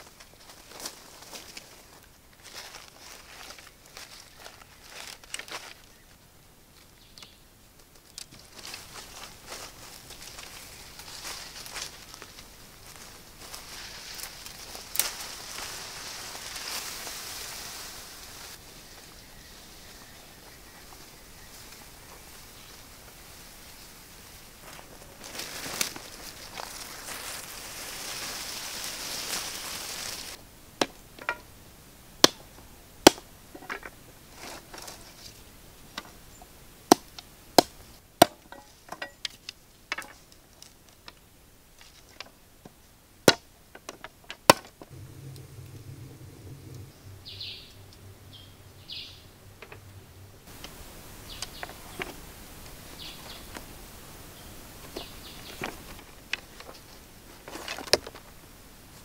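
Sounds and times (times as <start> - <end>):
sticks knocking: 30.8 - 31.5
machete chopping wooden sticks: 32.2 - 33.3, 36.9 - 40.2.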